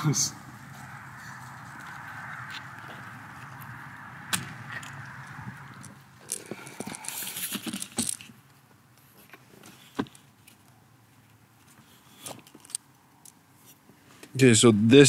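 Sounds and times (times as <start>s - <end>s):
plastic tools clattering and clicking: 6.2s - 8.3s.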